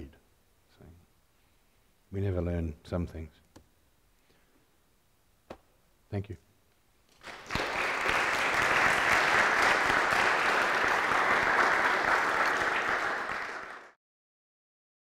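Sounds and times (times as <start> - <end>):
audience applauding: 7.1 - 14.0.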